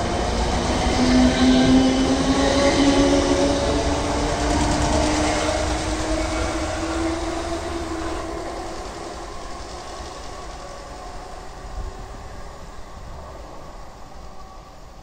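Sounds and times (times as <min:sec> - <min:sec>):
steady train hum: 0:00.0 - 0:15.0
train running past: 0:00.0 - 0:15.0.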